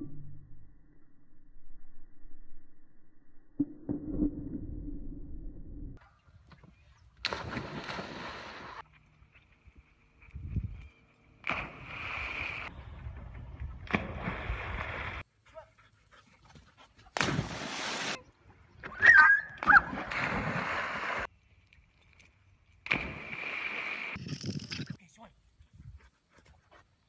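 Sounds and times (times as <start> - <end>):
dog yelping: 19.0 - 20.0.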